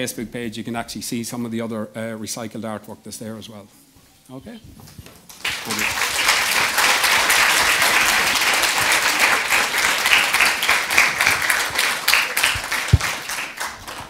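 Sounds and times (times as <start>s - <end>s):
audience applauding: 5.3s - 14.0s.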